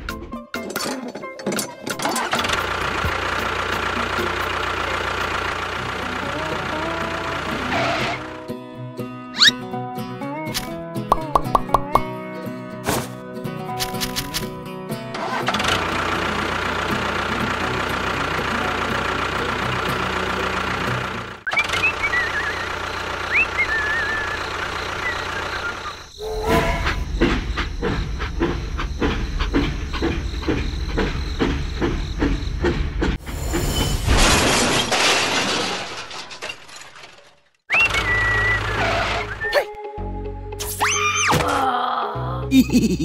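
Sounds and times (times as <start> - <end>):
engine hum: 0.0 - 9.2, 13.8 - 34.2, 37.0 - 40.6
steam locomotive chugging: 2.2 - 8.4, 15.6 - 33.6.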